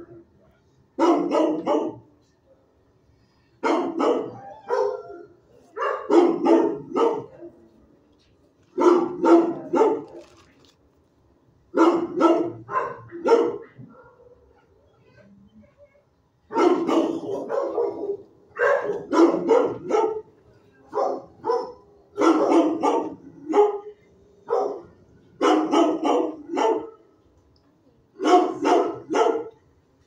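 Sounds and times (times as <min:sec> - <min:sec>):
dog barking: 0:01.0 - 0:02.1, 0:03.6 - 0:07.6, 0:08.7 - 0:10.3, 0:11.8 - 0:14.7, 0:16.5 - 0:20.3, 0:20.9 - 0:27.1, 0:28.2 - 0:29.6.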